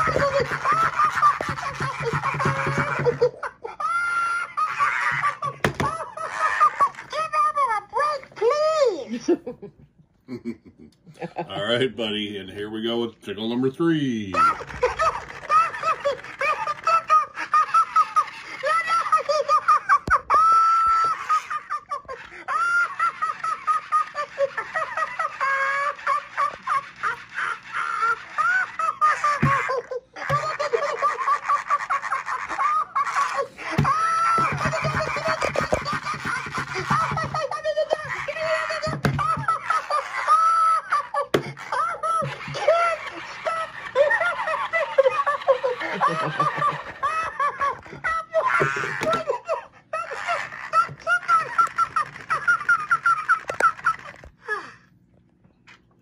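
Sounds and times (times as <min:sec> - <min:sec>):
toy laughing in high voice: 0:00.0 - 0:09.4, 0:14.3 - 0:54.7
toy thumping over: 0:05.6 - 0:06.0.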